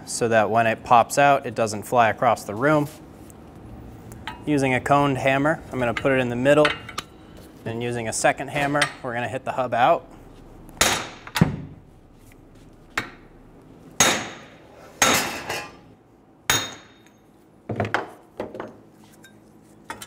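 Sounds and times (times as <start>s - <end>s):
hammer striking metal: 10.8s - 11.5s, 14.0s - 15.6s, 16.5s - 17.2s.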